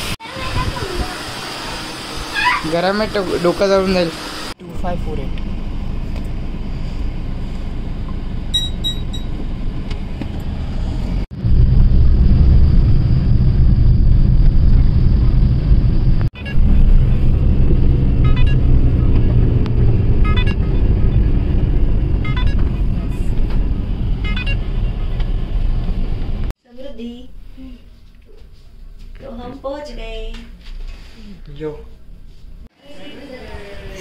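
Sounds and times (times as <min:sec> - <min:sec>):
car road and engine rumble: 0:04.2 - 0:26.6.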